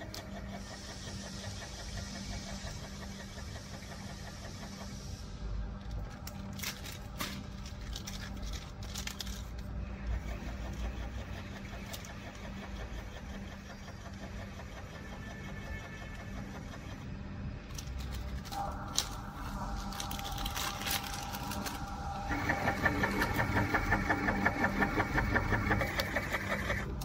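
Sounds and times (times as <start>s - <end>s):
filling machine motor hum: 0.0s - 27.0s
plastic bag crackling: 6.2s - 9.7s, 17.7s - 22.4s.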